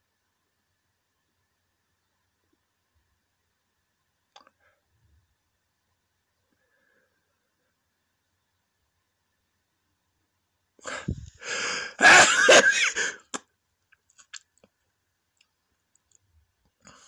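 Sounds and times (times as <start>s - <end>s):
man sneezing: 11.9s - 13.4s.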